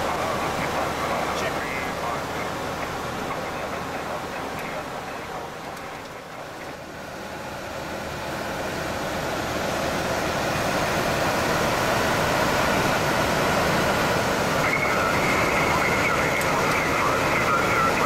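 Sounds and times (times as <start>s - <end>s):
aircraft engines: 0.0s - 18.0s.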